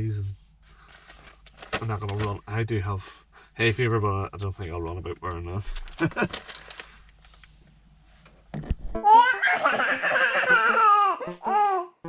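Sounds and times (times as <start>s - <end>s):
high-pitched laughter: 9.2s - 11.4s.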